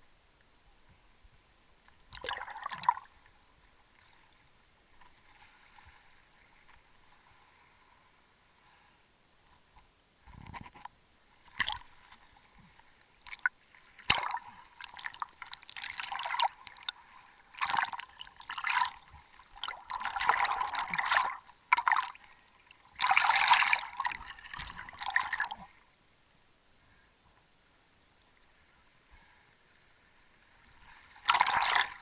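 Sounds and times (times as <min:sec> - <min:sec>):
water splashing and sloshing: 0:01.8 - 0:08.2, 0:10.6 - 0:25.9, 0:28.4 - 0:32.0.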